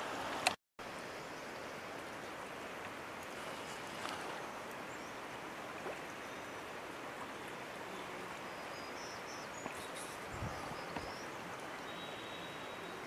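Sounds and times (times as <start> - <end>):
outdoor background hiss: 0.0 - 13.0
faint high chirps: 9.7 - 13.0.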